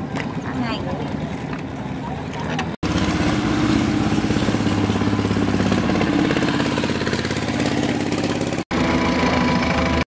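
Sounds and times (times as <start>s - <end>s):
boat engine pulsing: 0.0s - 10.0s.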